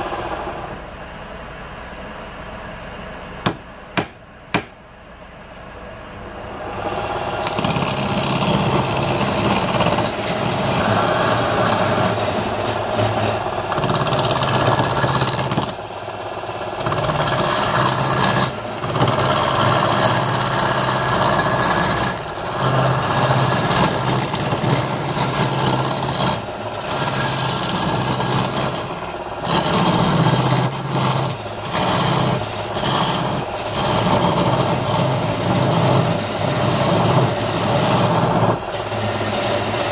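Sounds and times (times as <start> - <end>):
lathe motor hum: 0.0 - 39.9
turning tool scraping wood: 7.3 - 15.8, 16.8 - 39.9.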